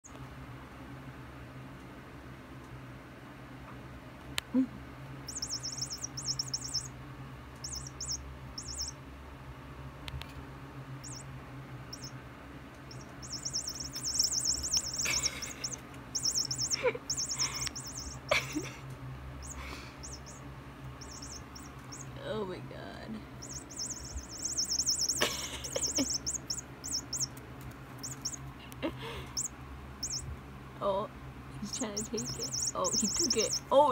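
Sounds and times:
toy mouse chirping trills: 5.3 - 6.9, 7.6 - 9.0, 11.0 - 11.3, 11.9 - 12.2, 12.9 - 18.7, 19.4 - 22.2, 23.4 - 27.4, 28.0 - 28.6, 29.2 - 30.3, 31.6 - 33.9.

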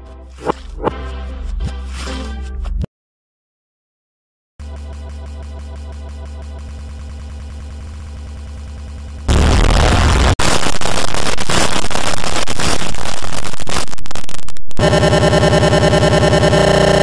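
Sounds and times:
harsh distorted noise: 4.6 - 17.0.

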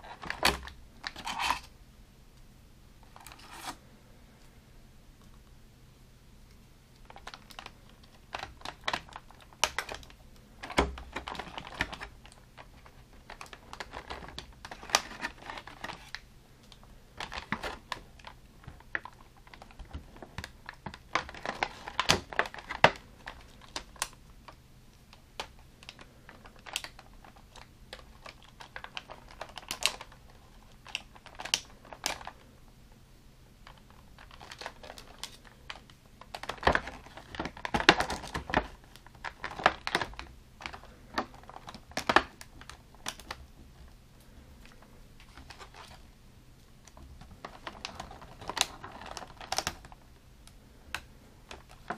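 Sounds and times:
plastic packaging crinkling: 0.0 - 1.7, 7.0 - 32.5, 33.6 - 51.9.

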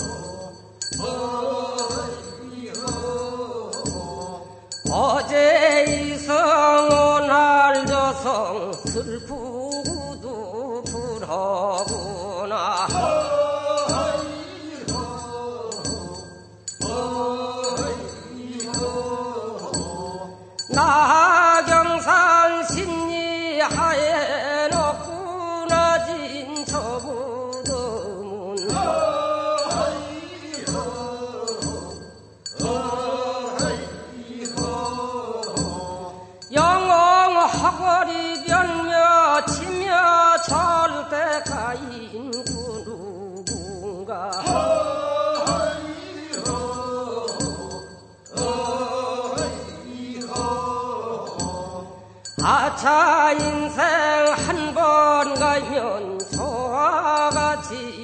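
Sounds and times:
hand bell struck: 0.0 - 58.0
person singing chant-like phrases: 0.0 - 58.0
voices chanting a dirge: 1.0 - 4.3, 12.9 - 16.2, 16.8 - 20.3, 28.6 - 36.2, 44.4 - 51.7.

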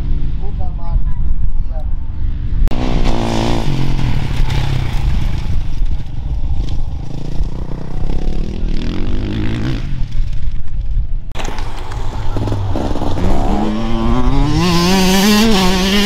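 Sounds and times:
dirt bike engines revving: 2.1 - 5.1, 6.1 - 10.4, 11.4 - 16.0.

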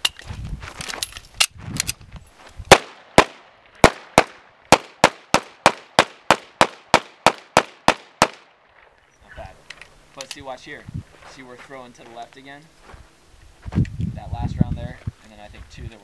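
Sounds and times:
pistol shots: 2.7 - 8.5.

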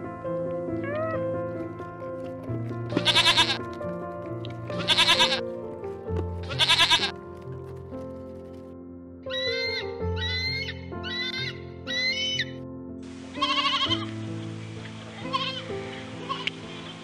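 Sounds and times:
background music: 0.0 - 17.0
animal bleating: 2.9 - 3.6, 4.7 - 5.4, 6.4 - 7.2, 13.4 - 14.1, 15.2 - 16.6.

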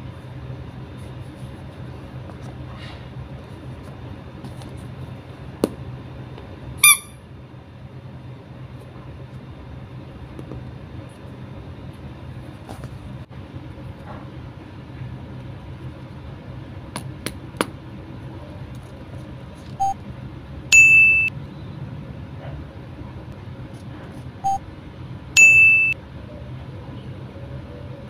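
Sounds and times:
low steady hum: 0.0 - 28.0
loud high beep: 6.8 - 7.2, 20.8 - 21.3, 25.4 - 26.0.

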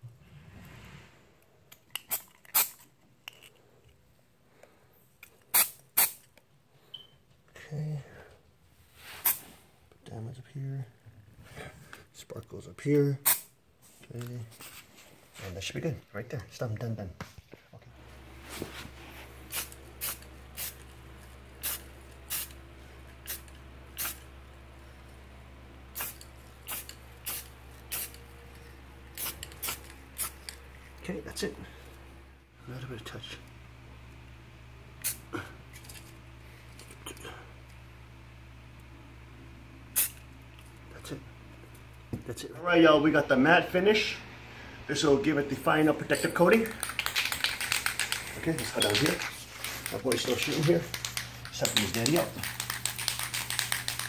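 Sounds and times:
spray paint can spritzes: 2.1 - 2.8, 5.5 - 6.2, 19.5 - 20.8, 21.6 - 22.6, 23.2 - 24.2, 26.0 - 28.2, 29.1 - 30.5, 35.0 - 35.2, 40.0 - 40.2, 46.8 - 54.0
steady low hum: 3.2 - 54.0.

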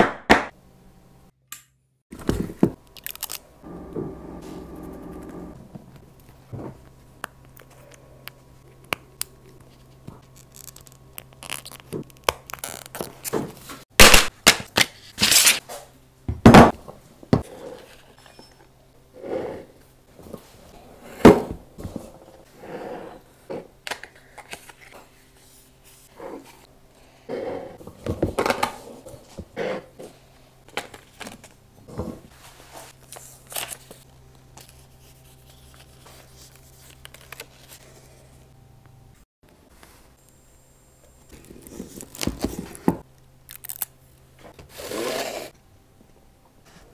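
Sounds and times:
low hum: 3.0 - 9.6.

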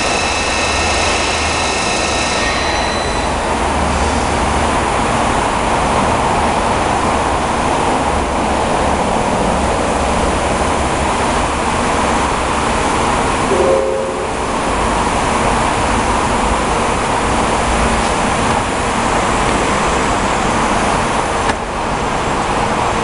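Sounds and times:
high whine: 0.0 - 5.2, 13.1 - 16.1.

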